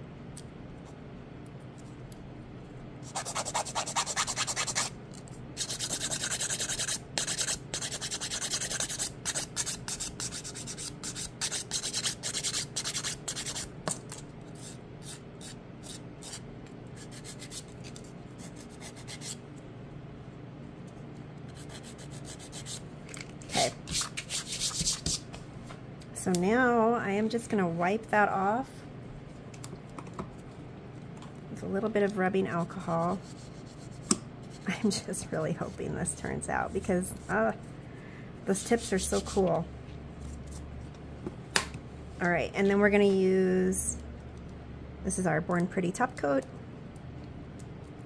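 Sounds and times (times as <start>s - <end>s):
nail file rasping on acrylic: 3.0s - 4.9s, 5.6s - 13.7s, 14.6s - 16.4s, 17.0s - 17.7s, 18.4s - 19.4s, 21.5s - 22.8s, 23.6s - 25.2s.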